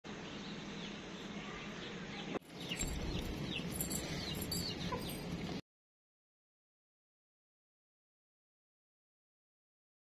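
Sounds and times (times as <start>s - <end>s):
outdoor background hiss: 0.1s - 5.6s
small birds chirping: 0.1s - 5.6s.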